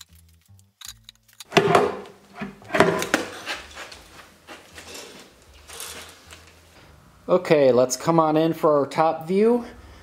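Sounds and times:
metal clunks and scrapes: 1.5 - 4.0.

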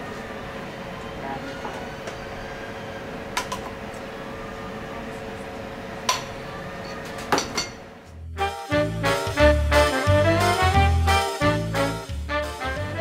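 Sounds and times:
swing music: 8.1 - 13.0.

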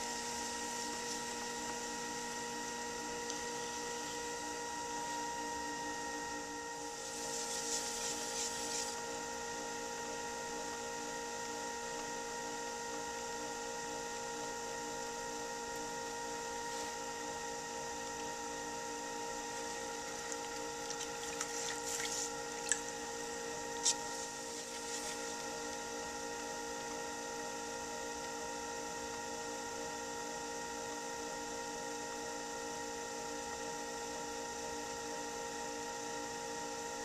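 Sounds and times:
pottery wheel motor humming: 0.0 - 37.0
wet hands swishing on clay: 7.0 - 9.0, 20.9 - 22.8, 23.8 - 25.4.

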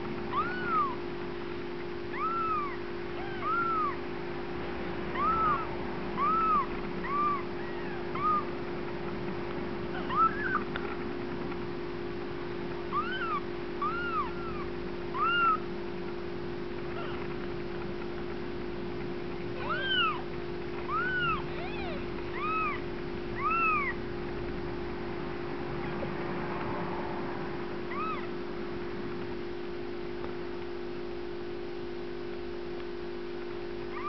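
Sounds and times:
steady low hum: 0.0 - 34.0
kittens mewing: 0.3 - 1.1, 2.1 - 4.1, 5.1 - 8.7, 9.8 - 10.9, 12.8 - 15.8, 16.8 - 17.6, 19.5 - 24.0, 27.8 - 28.4.

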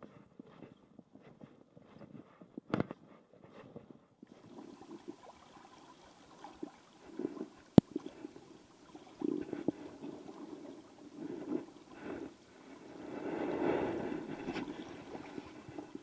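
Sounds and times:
river water splashing: 4.4 - 11.0.

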